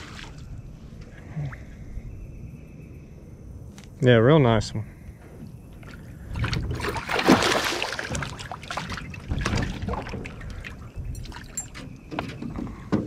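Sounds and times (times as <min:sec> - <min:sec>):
fish splashing at water surface: 0:06.3 - 0:10.8.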